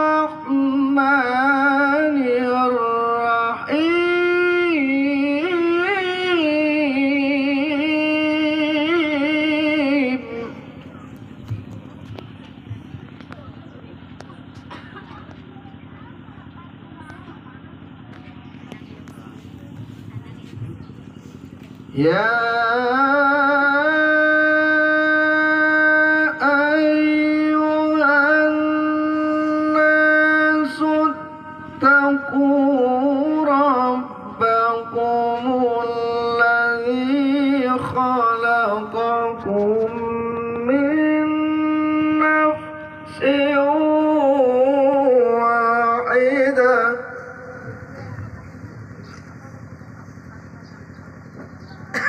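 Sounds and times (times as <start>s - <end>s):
man chanting melodic recitation: 0.0s - 10.8s, 21.9s - 47.9s.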